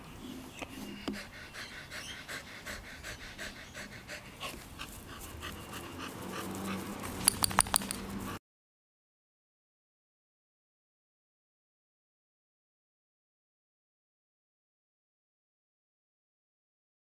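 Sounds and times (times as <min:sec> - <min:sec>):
dog panting: 0:00.7 - 0:08.4
sharp clicks: 0:07.2 - 0:08.1.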